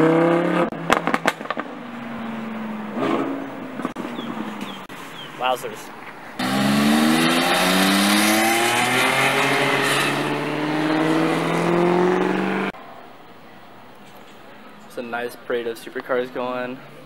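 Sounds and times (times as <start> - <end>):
sports car engine accelerating: 0.0 - 4.9, 6.4 - 12.8.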